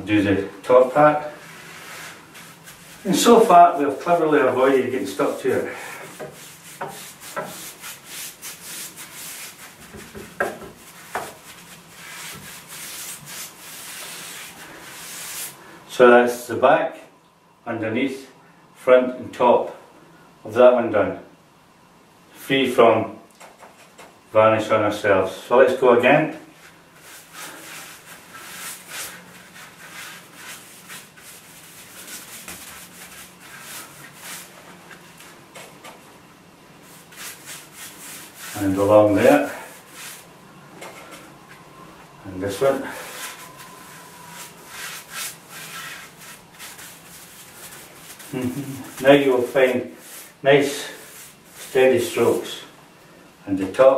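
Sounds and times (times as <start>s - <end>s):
paintbrush swishing varnish on wood: 1.4s - 15.6s, 26.6s - 35.1s, 36.8s - 40.3s, 42.6s - 52.6s.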